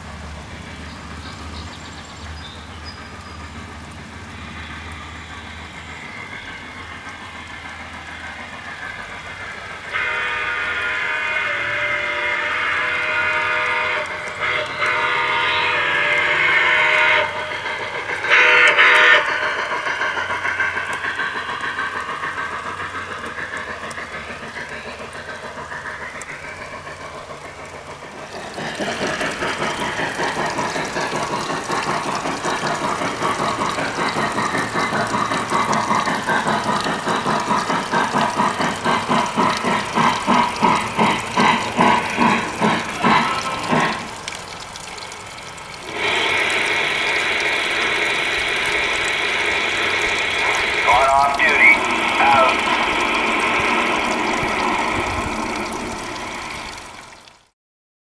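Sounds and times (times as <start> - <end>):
model train running: 0.0 - 57.5
steam chuffing: 0.0 - 57.5
model train whistle: 9.9 - 17.6, 18.2 - 19.4
steady mechanical sound: 16.5 - 57.5.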